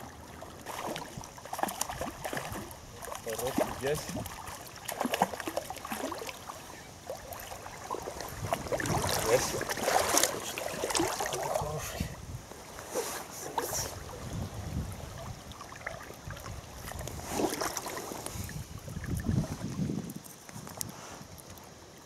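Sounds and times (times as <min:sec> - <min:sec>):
river water running and splashing: 0:00.0 - 0:22.0
loud splashes: 0:00.6 - 0:02.7, 0:07.1 - 0:11.6
wind rumbling on microphone: 0:00.8 - 0:04.5, 0:07.2 - 0:21.8.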